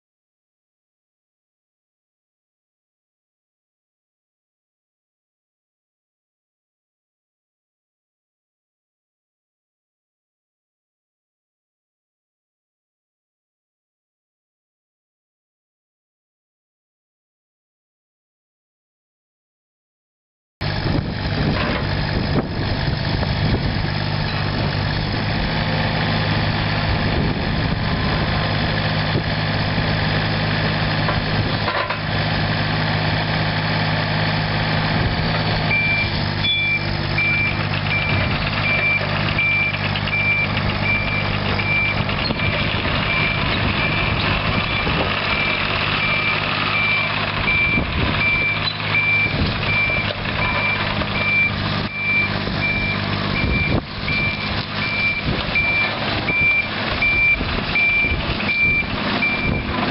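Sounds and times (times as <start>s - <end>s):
excavator diesel engine running: 20.6s - 59.9s
high-pitched travel alarm beeping: 35.8s - 44.1s.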